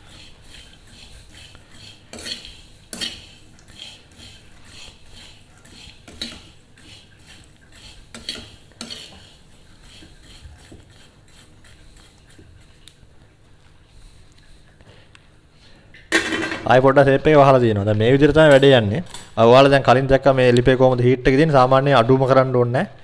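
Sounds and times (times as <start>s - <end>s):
metal spoon scraping pan: 0.0s - 12.9s.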